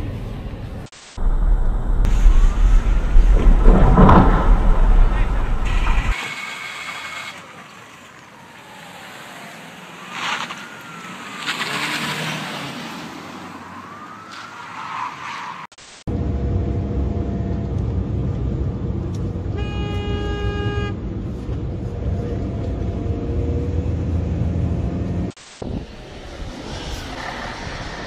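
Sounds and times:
emergency vehicle siren wailing: 0:08.1 - 0:12.6, 0:13.2 - 0:15.4.

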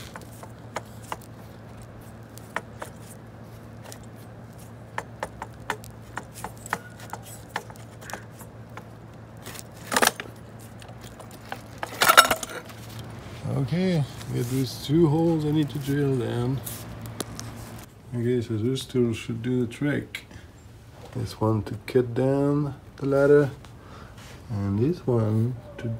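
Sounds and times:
metal clatter: 0:05.1 - 0:13.0.

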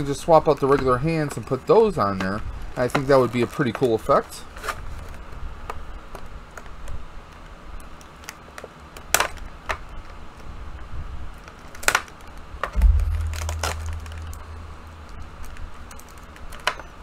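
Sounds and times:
low bump: 0:12.8 - 0:15.6
low rumble: 0:12.8 - 0:15.6.

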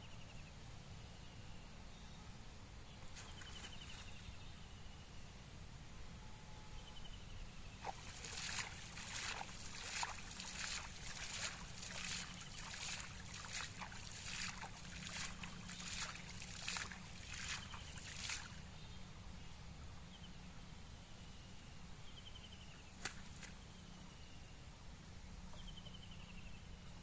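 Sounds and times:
net splashing through water: 0:07.8 - 0:18.6.

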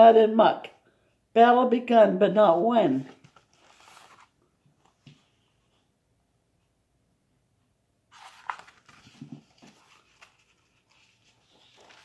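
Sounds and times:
book rustling and handling: 0:02.9 - 0:05.8, 0:08.1 - 0:12.0.

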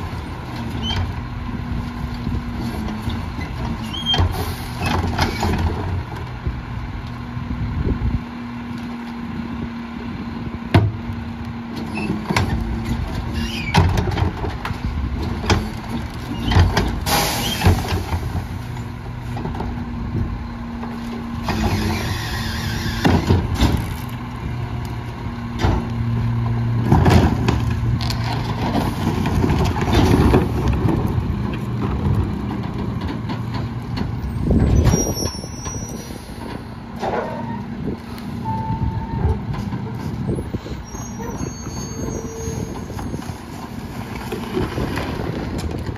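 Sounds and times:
hissing air burst: 0:17.1 - 0:17.8.

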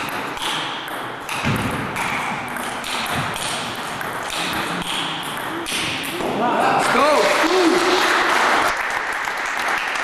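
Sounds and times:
table tennis ball clicking: 0:00.1 - 0:06.2.

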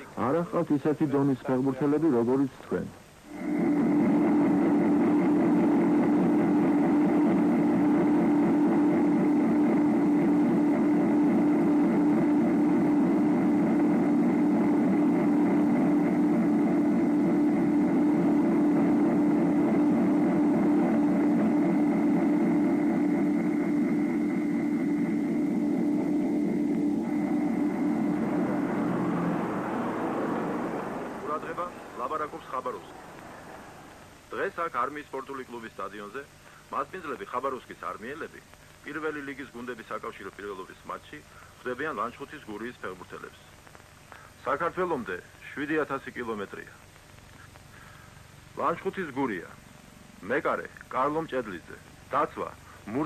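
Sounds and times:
thin high whine: 0:00.0 - 0:40.8
airliner engines droning: 0:03.3 - 0:35.3.

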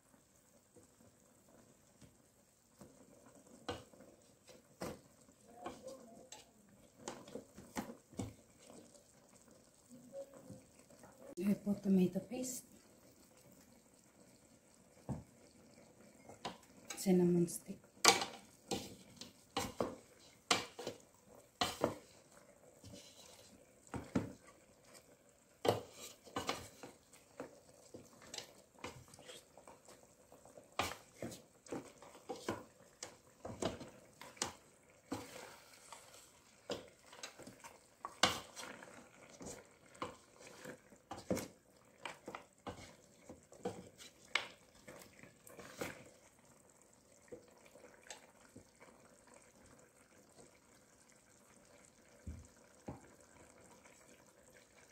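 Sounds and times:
spatula knocking and scraping pot: 0:03.6 - 0:09.0, 0:18.0 - 0:46.1.

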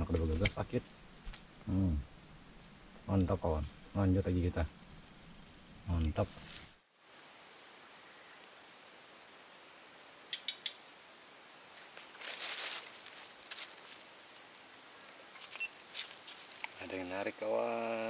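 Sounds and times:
insects chirring: 0:00.0 - 0:18.0
faint ticks: 0:10.3 - 0:10.8, 0:14.4 - 0:16.8
short rustle: 0:11.8 - 0:14.0.

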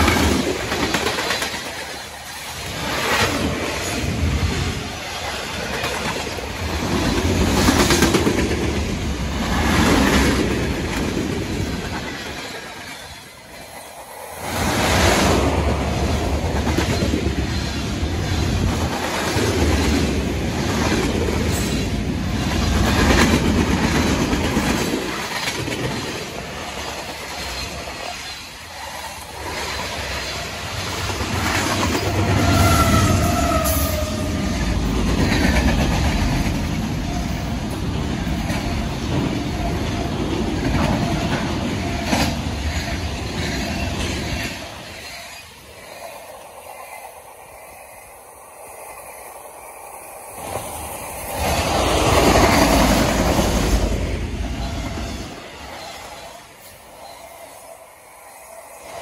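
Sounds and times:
freight train cars rolling past: 0:00.0 - 0:59.0.

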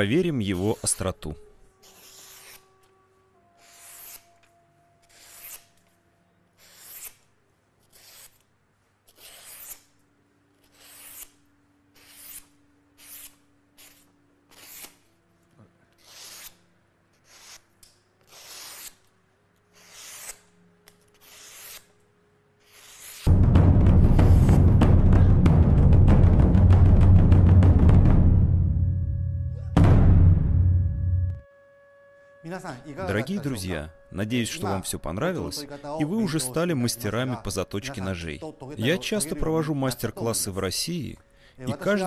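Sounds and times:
knife slicing paper swish: 0:05.1 - 0:05.7, 0:12.0 - 0:15.0, 0:18.2 - 0:19.0, 0:19.7 - 0:20.5, 0:21.1 - 0:21.9, 0:22.6 - 0:23.3.

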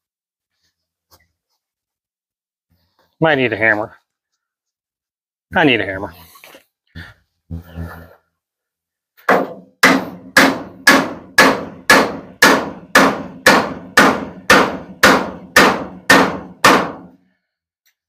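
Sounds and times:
hammer strikes: 0:09.2 - 0:17.2.

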